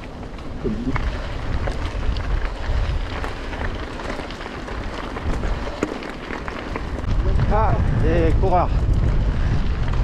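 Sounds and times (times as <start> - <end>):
bike clicks and rattles: 0.0 - 10.0
wind on microphone: 0.5 - 4.0, 6.9 - 10.0.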